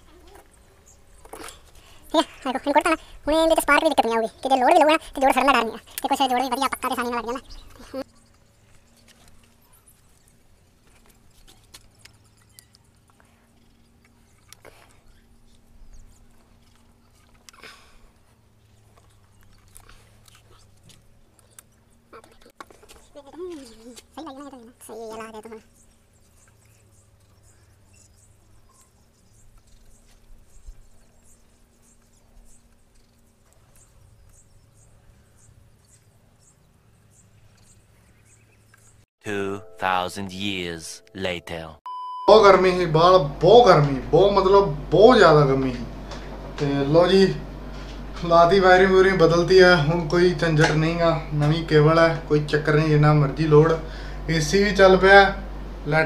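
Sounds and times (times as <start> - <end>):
low steady hum: 0.0 - 56.0
faint low hum: 39.3 - 56.0.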